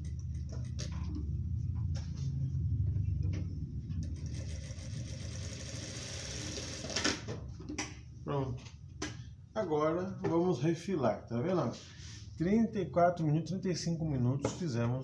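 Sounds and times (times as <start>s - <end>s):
sewing machine running: 4.0s - 7.2s.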